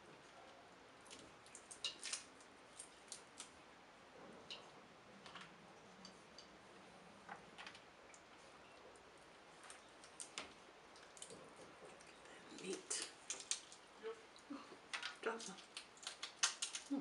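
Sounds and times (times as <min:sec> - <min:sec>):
crab shells cracking: 0:01.1 - 0:03.6, 0:09.6 - 0:13.9, 0:14.9 - 0:16.9.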